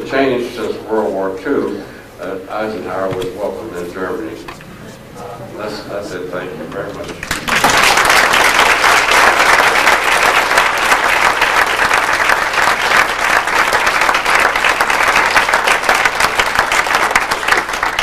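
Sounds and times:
audience applauding: 7.2s - 18.0s.

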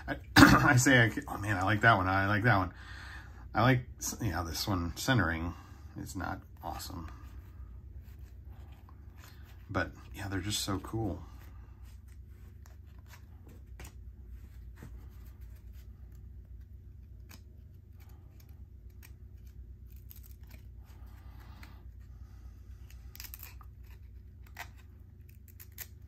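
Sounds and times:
steady low hum: 0.0s - 26.0s
cards clicking and rustling: 10.4s - 22.1s, 22.8s - 26.0s.

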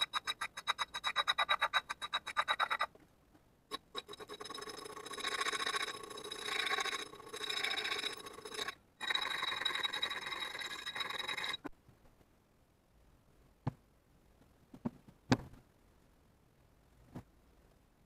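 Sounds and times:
needle file rasping on metal: 0.0s - 2.9s.

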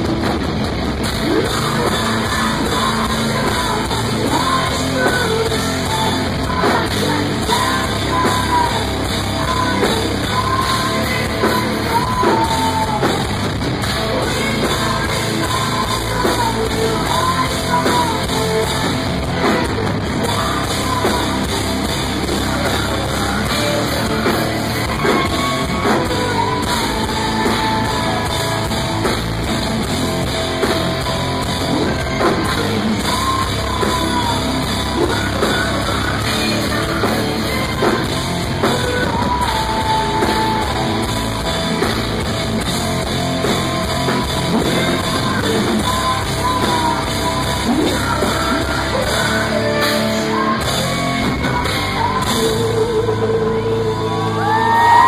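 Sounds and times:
distorted guitars: 0.0s - 55.0s
drum kit: 0.0s - 55.0s
woman singing and screaming: 45.4s - 55.0s.

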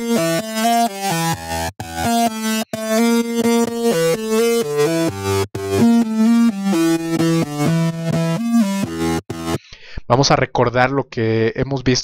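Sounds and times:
distorted acid synth riff: 0.0s - 9.6s.

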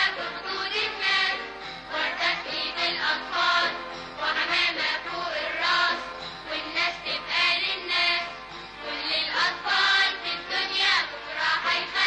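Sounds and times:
children's choir singing: 0.0s - 12.0s.

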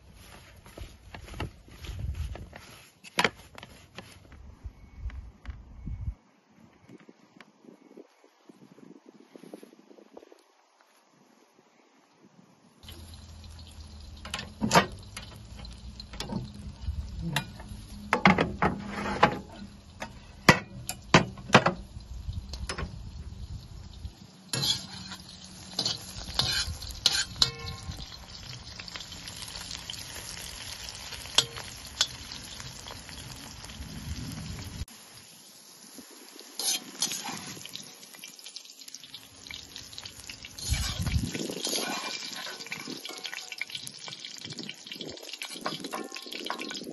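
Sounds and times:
peppers sizzling in a wok: 12.8s - 46.9s
metal spoon scraping a wok: 18.7s - 21.0s, 24.5s - 28.1s, 36.6s - 37.6s, 40.6s - 43.6s.

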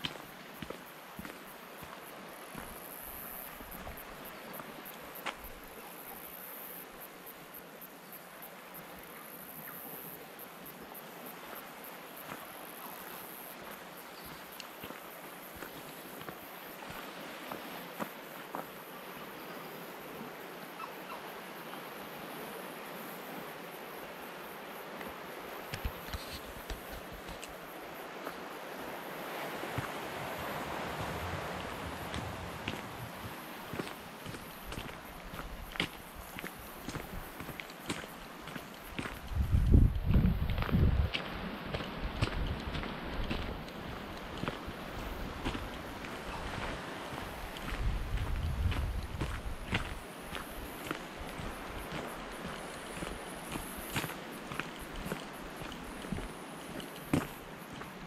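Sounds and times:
insects chirring: 0.0s - 58.0s
wind: 0.0s - 58.0s
sea surf: 6.8s - 39.1s, 41.3s - 48.2s
steady hiss: 21.4s - 58.0s.

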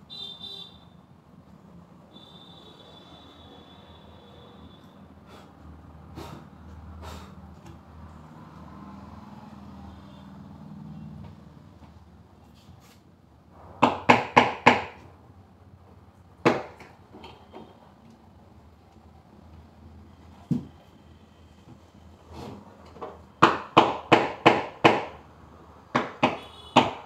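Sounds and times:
knocks on wooden panels: 13.8s - 15.1s, 16.4s - 17.0s, 23.0s - 25.2s, 25.9s - 27.0s.

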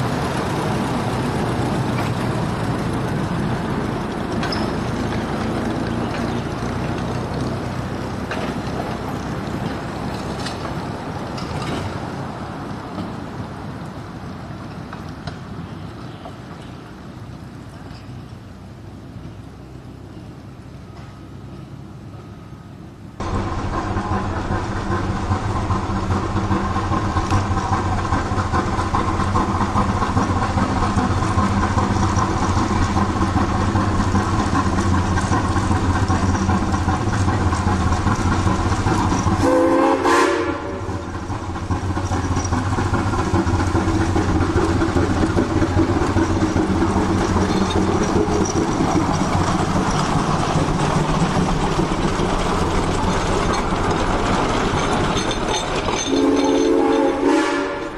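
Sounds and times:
steam locomotive running: 0.0s - 57.9s
steam whistle blast: 39.4s - 41.0s, 56.1s - 57.9s.

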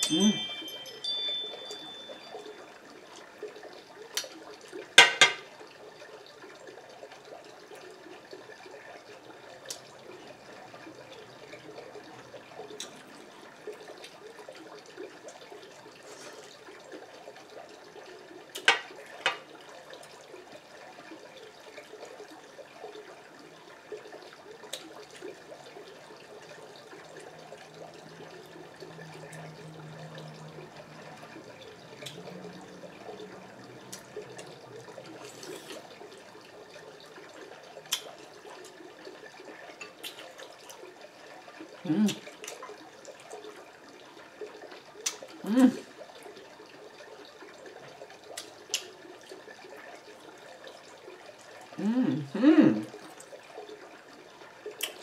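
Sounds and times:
wet chewing: 35.1s - 36.0s, 39.8s - 40.8s
fork picking through food: 35.2s - 35.8s.

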